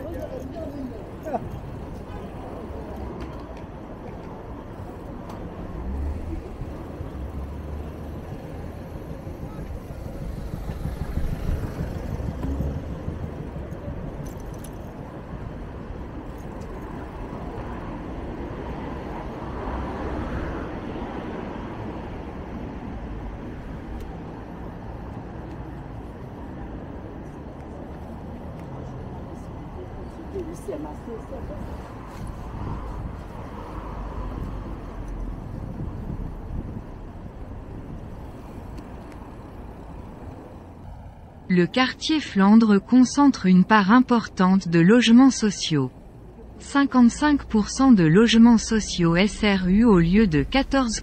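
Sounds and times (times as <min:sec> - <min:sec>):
traffic rumble: 0:00.0 - 0:51.0
vehicles passing: 0:00.0 - 0:51.0.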